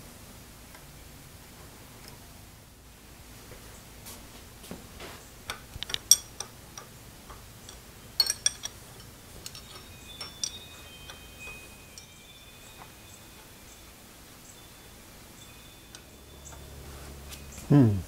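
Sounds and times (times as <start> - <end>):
hand tools clinking on metal table: 5.5 - 13.7.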